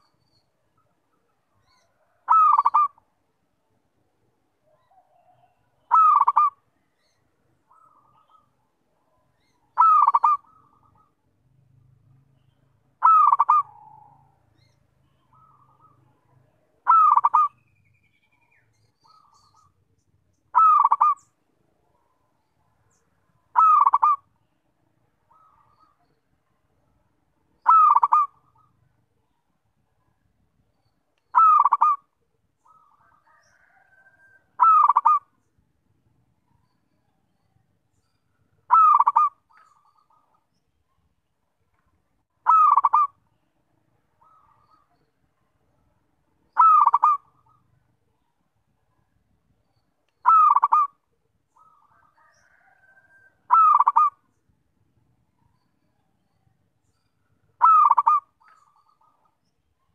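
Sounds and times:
dove cooing: 0:01.6 - 0:03.0, 0:04.8 - 0:06.6, 0:09.8 - 0:11.2, 0:13.0 - 0:14.4, 0:16.8 - 0:17.6, 0:20.5 - 0:21.2, 0:23.6 - 0:24.3, 0:27.6 - 0:28.7, 0:31.3 - 0:32.1, 0:32.7 - 0:35.3, 0:38.7 - 0:40.3, 0:42.4 - 0:43.2, 0:46.6 - 0:47.8, 0:50.2 - 0:51.0, 0:51.6 - 0:54.2, 0:57.6 - 0:59.3.

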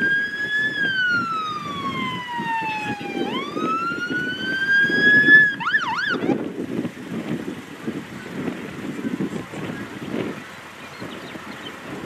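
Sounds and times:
police siren wailing: 0:00.0 - 0:06.4.

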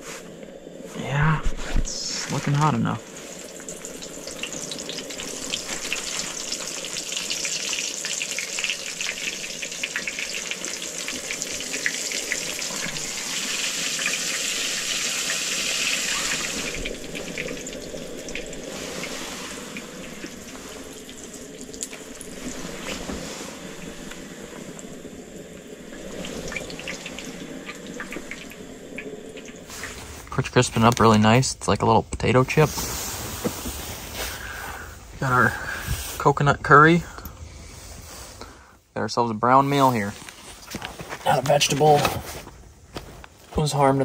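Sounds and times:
fish deep-frying crackling sizzle: 0:01.9 - 0:37.1.

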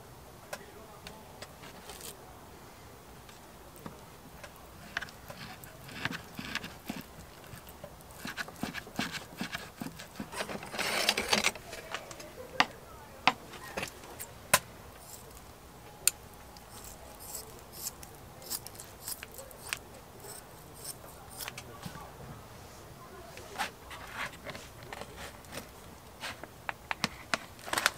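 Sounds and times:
scissors snipping: 0:16.1 - 0:21.6.

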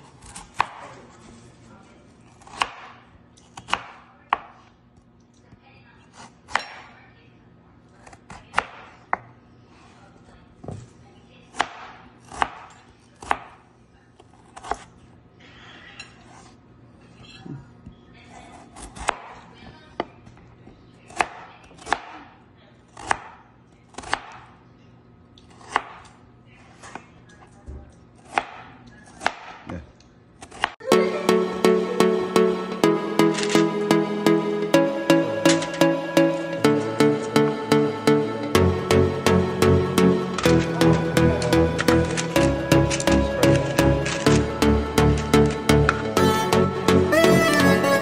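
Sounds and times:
knife chopping on cutting board: 0:02.4 - 0:02.9.

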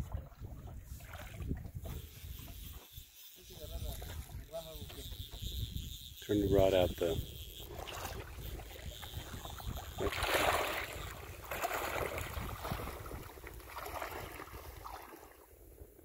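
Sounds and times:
person wading through water: 0:00.0 - 0:01.8, 0:07.7 - 0:15.6
wind rumbling on microphone: 0:00.0 - 0:02.8, 0:03.6 - 0:16.0.

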